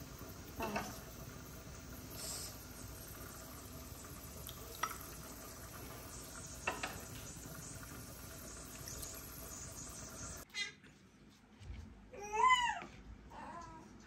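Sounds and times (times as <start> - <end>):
faint steady hiss: 0.0 - 10.5.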